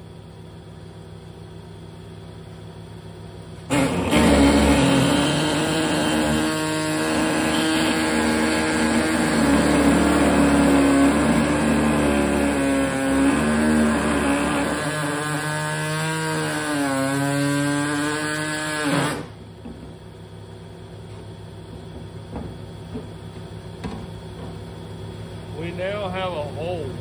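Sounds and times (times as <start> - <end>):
electric grinder whining: 3.7 - 19.4.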